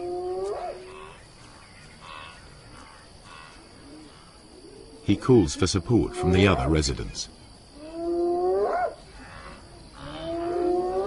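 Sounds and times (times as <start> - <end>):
hyena whoop call: 7.8 - 11.0.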